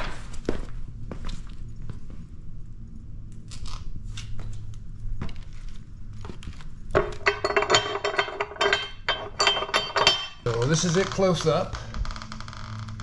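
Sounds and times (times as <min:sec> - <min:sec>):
metal brackets clinking: 0:07.0 - 0:11.6.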